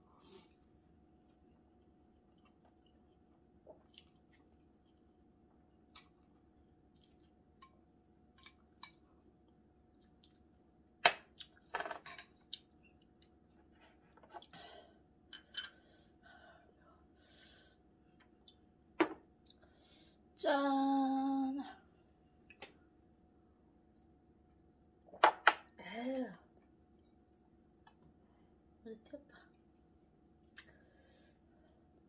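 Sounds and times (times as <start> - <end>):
soft chewing: 0.4 - 10.6, 11.3 - 11.7, 12.3 - 14.6
dishes and cutlery clattering: 11.8 - 12.4.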